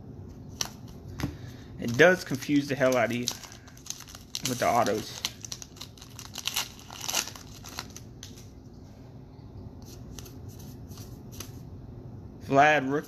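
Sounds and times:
cards rustling and clicking: 0.5s - 8.5s, 9.8s - 11.6s
wrapper crinkling and tearing: 1.8s - 8.5s.

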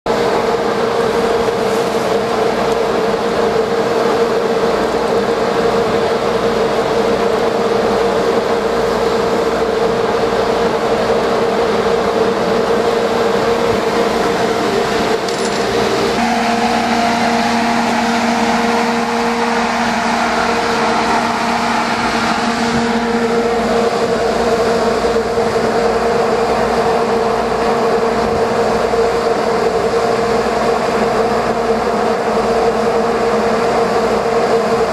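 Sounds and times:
boat engine drone: 0.1s - 34.9s
wind noise on microphone: 17.9s - 34.9s.

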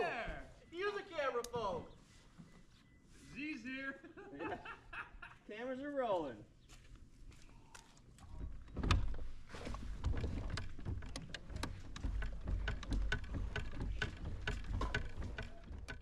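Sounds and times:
pedal drive clicking and knocking: 8.2s - 16.0s
water rumbling against hull: 8.3s - 16.0s.

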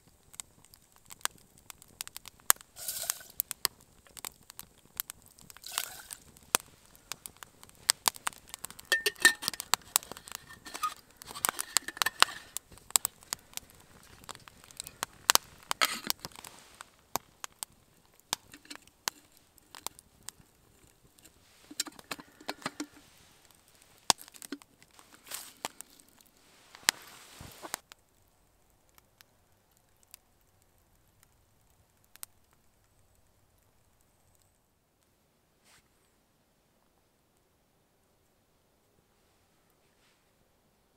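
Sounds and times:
campfire crackling and popping: 0.0s - 34.6s
metal kettle lid clinks: 8.9s - 9.6s.

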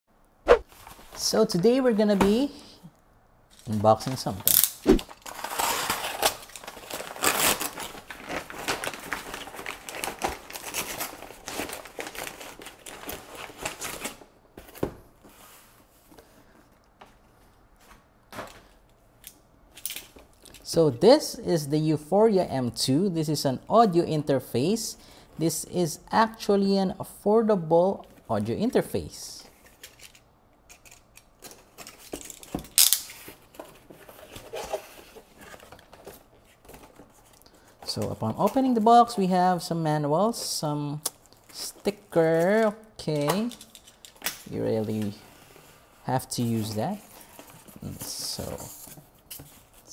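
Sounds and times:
paper bag crinkling and tearing: 5.0s - 14.3s.

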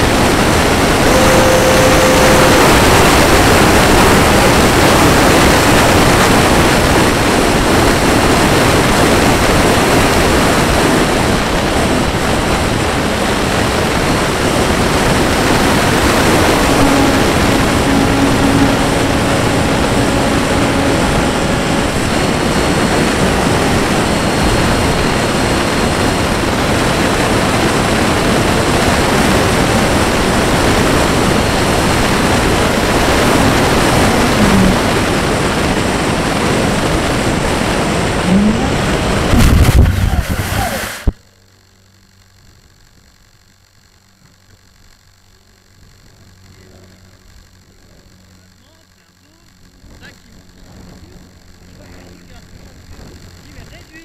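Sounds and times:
ducted fan hiss: 0.0s - 54.0s
faint tone: 0.8s - 5.5s, 15.6s - 25.3s, 32.6s - 35.3s, 38.0s - 39.5s.

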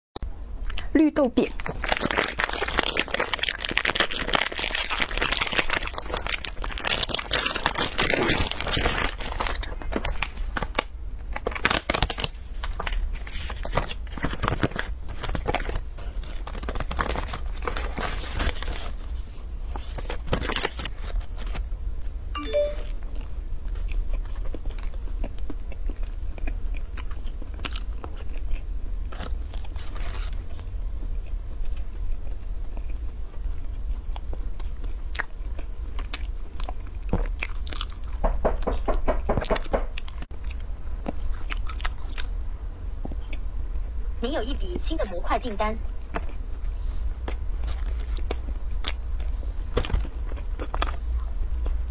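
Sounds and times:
biting and chewing: 1.5s - 21.6s, 23.1s - 42.4s, 46.0s - 46.6s, 47.2s - 51.9s
paper wrapping crinkling: 1.5s - 21.6s.

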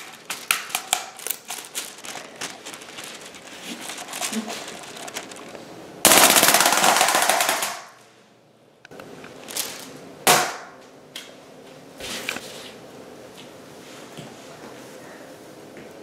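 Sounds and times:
wind-up toy wings clattering: 0.0s - 7.7s.

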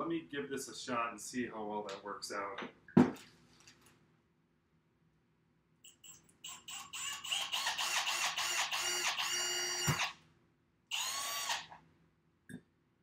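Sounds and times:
cordless drill whining: 6.4s - 10.2s, 10.9s - 11.8s.

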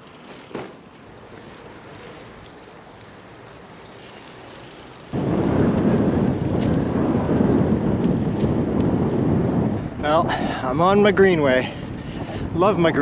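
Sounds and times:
wind buffeting microphone: 5.1s - 13.0s.

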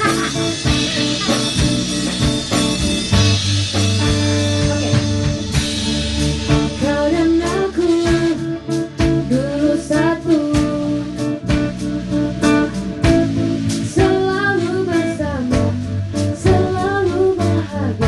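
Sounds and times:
instrumental accompaniment: 0.0s - 18.0s
woman singing into a microphone: 6.5s - 11.5s, 13.8s - 18.0s.

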